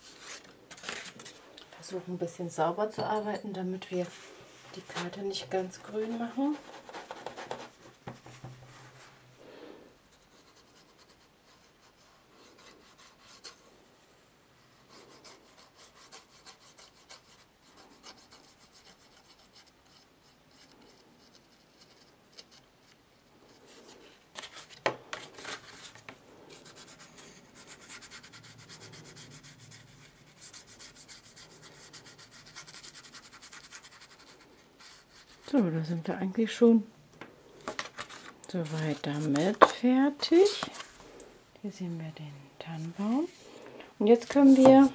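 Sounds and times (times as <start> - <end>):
paintbrush rubbing on paper: 4.0 - 8.0, 26.5 - 35.7, 44.1 - 44.9.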